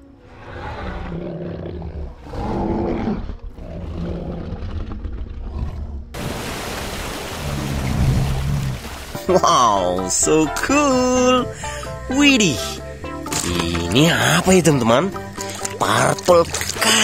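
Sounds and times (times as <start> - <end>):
giant ape roaring: 0.2 - 6.2.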